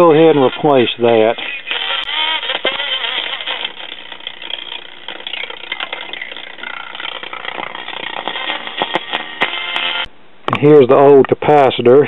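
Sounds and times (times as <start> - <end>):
distorted radio voice: 0.0 - 3.7
busy noisy radio sound: 0.0 - 10.0.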